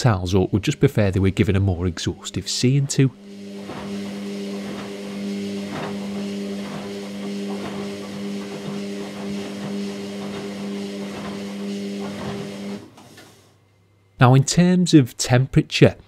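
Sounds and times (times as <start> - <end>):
washing machine motor hum: 0.0 - 13.4
water sloshing in drum: 3.2 - 12.8.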